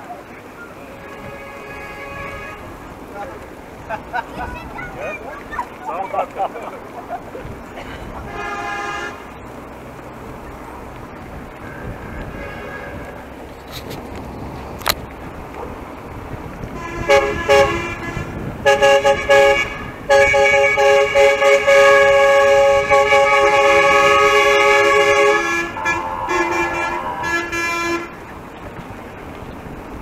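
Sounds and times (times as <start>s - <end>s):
vehicle horns honking: 0.8s - 2.8s, 8.2s - 9.4s, 11.6s - 13.9s, 16.7s - 28.3s.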